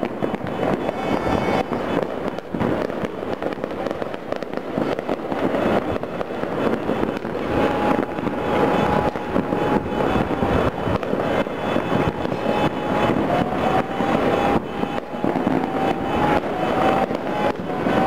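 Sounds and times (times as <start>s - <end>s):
fireworks popping and crackling: 0.0s - 18.0s.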